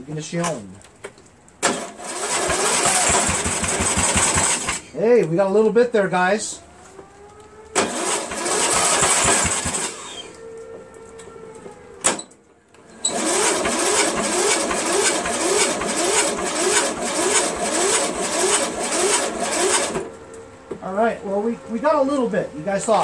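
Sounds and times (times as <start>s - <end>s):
engine cranking with starter: 1.6s - 5.0s, 7.7s - 10.3s, 12.8s - 20.2s.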